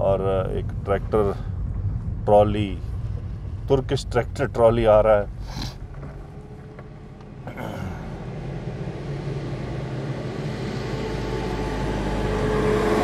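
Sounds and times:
tractor diesel engine passing: 0:06.2 - 0:13.0.

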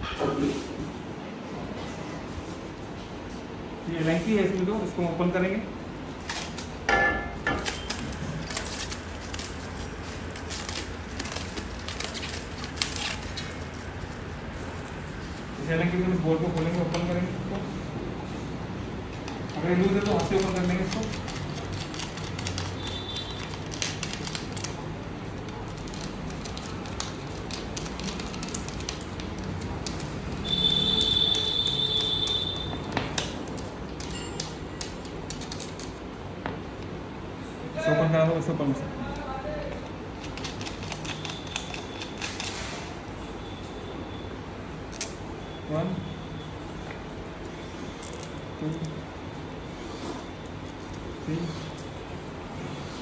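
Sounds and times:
plastic wrapping crinkling: 0:07.5 - 0:15.7, 0:19.8 - 0:36.0.

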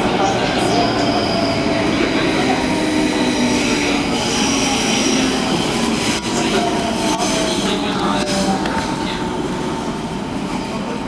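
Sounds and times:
train wheels rumbling on rails: 0:00.0 - 0:11.0
high wheel squeal: 0:00.3 - 0:07.8.

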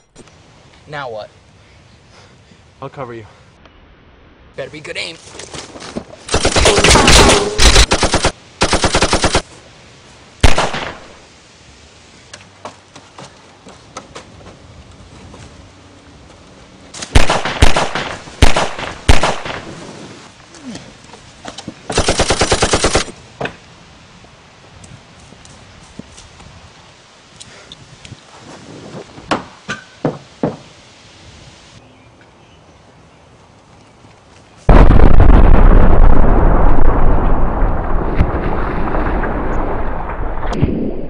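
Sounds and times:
automatic gunfire: 0:06.3 - 0:09.4, 0:10.4 - 0:11.1, 0:17.2 - 0:19.6, 0:22.0 - 0:23.1
single gunshot: 0:10.4 - 0:11.1, 0:17.2 - 0:19.7.

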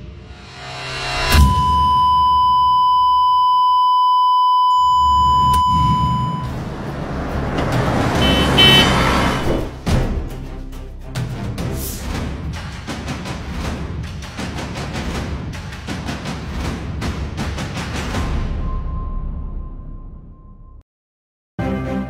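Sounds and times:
long steady electronic beep: 0:01.3 - 0:06.6, 0:08.2 - 0:08.9
noisy rush of music: 0:05.9 - 0:18.7.

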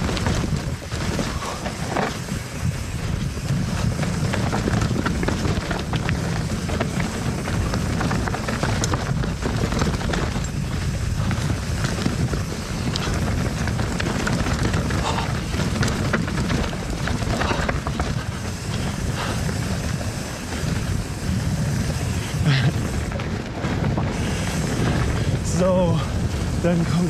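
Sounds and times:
bike clicks and rattles: 0:00.0 - 0:27.0
bike tyre noise: 0:00.0 - 0:27.0
wind rumble on microphone: 0:00.0 - 0:27.0.

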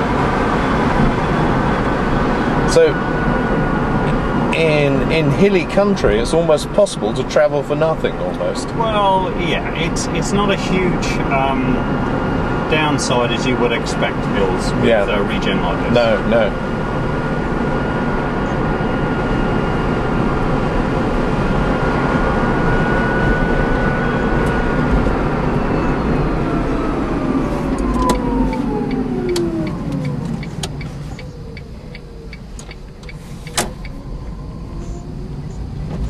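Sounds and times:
tyre and road noise: 0:00.0 - 0:36.0
electric car motor whining: 0:24.3 - 0:32.9.

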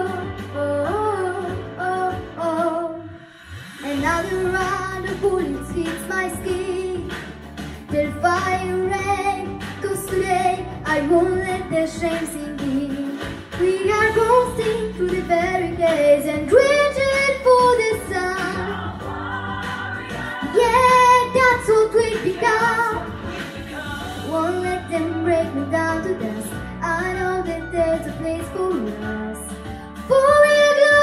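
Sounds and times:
backing track: 0:00.0 - 0:31.0
girl singing a pop ballad: 0:00.0 - 0:31.0.

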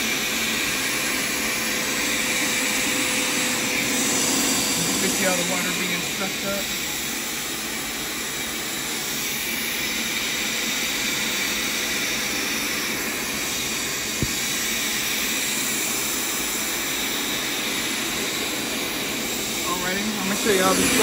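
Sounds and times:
carpet cleaner suction hissing: 0:00.0 - 0:21.0.

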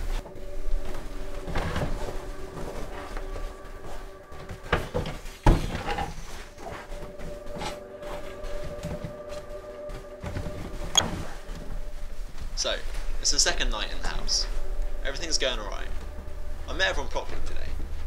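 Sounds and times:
knocks and clatter of objects moved: 0:04.1 - 0:11.2
faint steady hum: 0:06.2 - 0:18.0.

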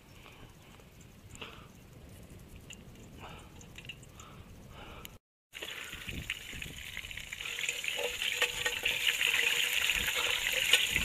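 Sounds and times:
hot oil sizzling and crackling: 0:05.5 - 0:11.0.

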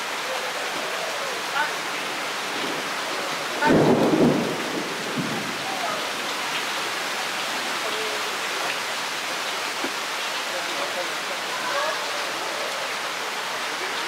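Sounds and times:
heavy rain falling: 0:00.0 - 0:14.0
thunder rumble: 0:02.2 - 0:06.6.

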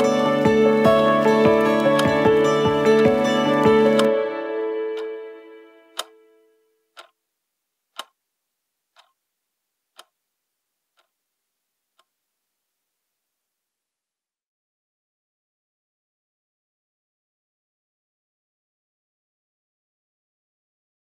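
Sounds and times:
clock ticking: 0:00.0 - 0:04.1, 0:05.9 - 0:06.2, 0:06.9 - 0:07.2, 0:07.9 - 0:08.2, 0:08.9 - 0:09.2, 0:09.9 - 0:10.1, 0:10.9 - 0:11.1
sustained music notes: 0:00.0 - 0:06.6.

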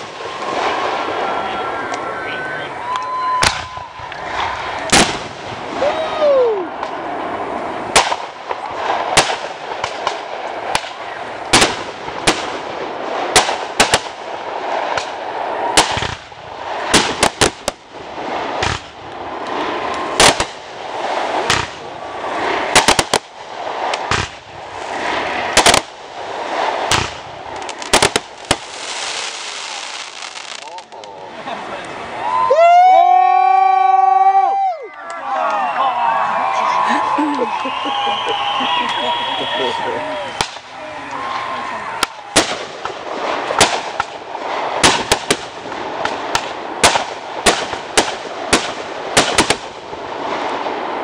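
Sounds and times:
falling firework whistle: 0:00.0 - 0:07.0, 0:32.2 - 0:42.6
fireworks bangs: 0:00.0 - 0:32.5, 0:36.0 - 0:51.0
crackling hiss: 0:00.0 - 0:36.2.

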